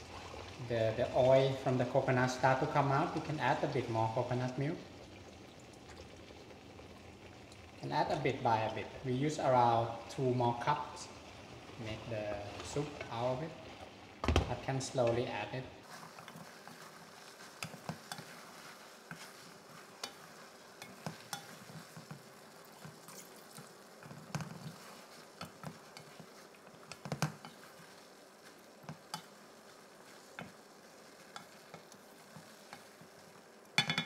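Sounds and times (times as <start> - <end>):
faint sizzle of sauce: 0.0 - 34.0
wooden spatula scraping pan: 11.6 - 13.4, 14.5 - 23.0, 24.0 - 33.4.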